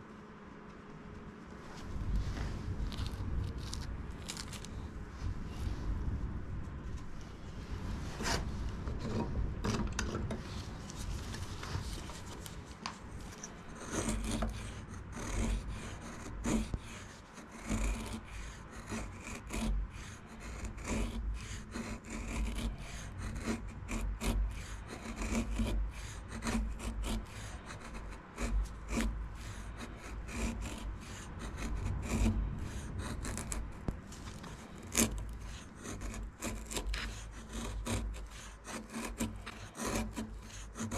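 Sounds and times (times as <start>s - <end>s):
knife carving wood: 2.0s - 4.8s, 8.2s - 40.9s.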